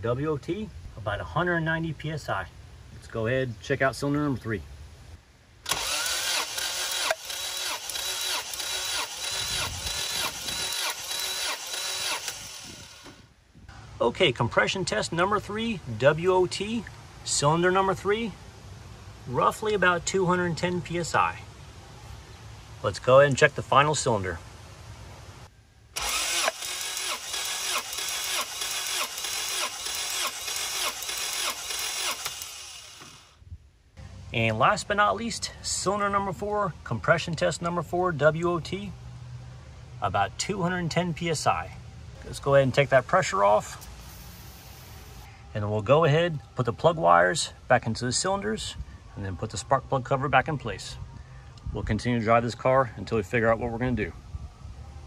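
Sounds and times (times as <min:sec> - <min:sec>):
engine cranking without firing: 0:05.6 - 0:13.3, 0:26.0 - 0:33.4.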